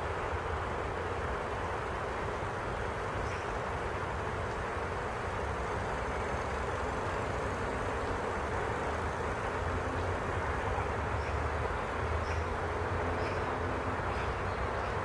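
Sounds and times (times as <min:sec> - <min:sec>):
steady rushing noise: 0:00.0 - 0:15.0.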